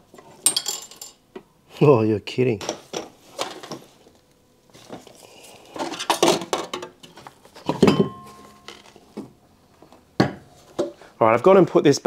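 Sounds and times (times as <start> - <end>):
metal tools clinking: 0.4 - 1.2, 5.8 - 9.0.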